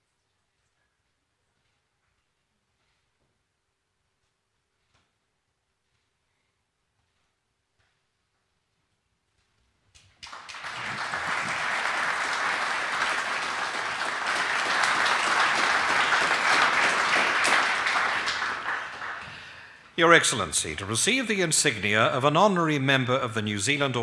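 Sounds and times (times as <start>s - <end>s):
audience applauding in a hall: 10.2s - 24.0s.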